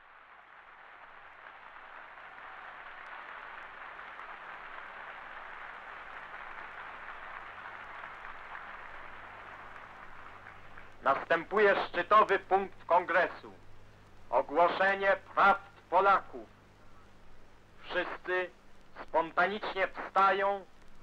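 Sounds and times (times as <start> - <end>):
audience applause: 0.0 - 12.6
low steady hum: 2.9 - 21.0.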